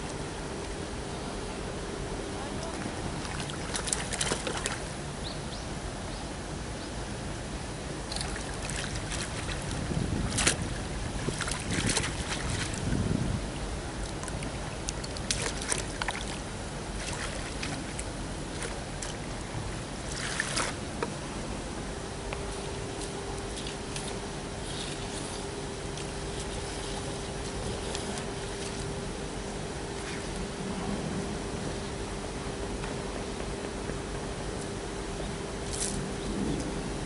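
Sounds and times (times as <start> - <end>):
fish splashing in water: 3.2 - 4.9, 8.1 - 12.9, 14.0 - 19.4, 20.0 - 20.8
wind on microphone: 8.1 - 20.8.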